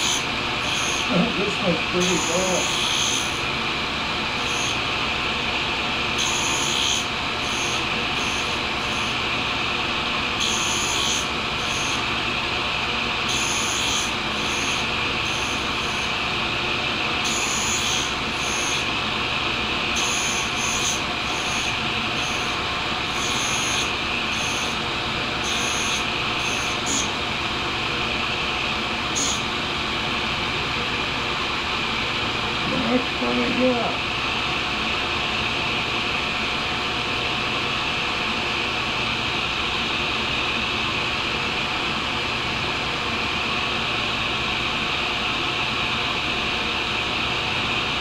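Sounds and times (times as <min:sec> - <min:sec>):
grinder grinding hiss: 0:00.0 - 0:03.5, 0:06.2 - 0:09.2, 0:10.4 - 0:12.0, 0:13.3 - 0:16.2, 0:17.2 - 0:18.9, 0:20.0 - 0:24.8, 0:25.4 - 0:27.2, 0:29.2 - 0:29.5.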